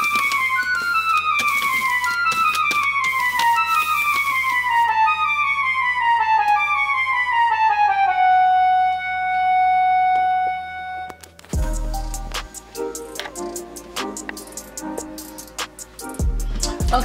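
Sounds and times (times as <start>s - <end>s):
deep bass note and beat: 11.6s - 12.6s.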